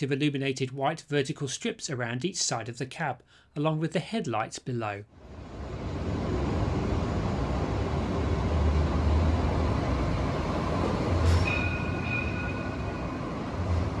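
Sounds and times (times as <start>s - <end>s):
tram running in: 5.2s - 14.0s.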